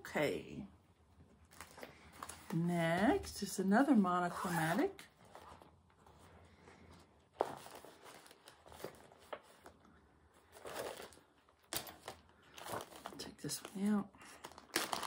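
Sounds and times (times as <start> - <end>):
sheet of paper rustling: 4.4 - 15.0.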